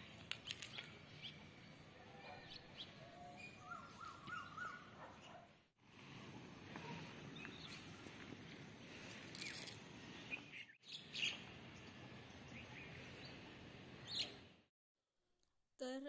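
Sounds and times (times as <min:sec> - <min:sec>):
low outdoor background: 0:00.0 - 0:16.0
birds chirping: 0:00.7 - 0:05.4, 0:06.7 - 0:14.5.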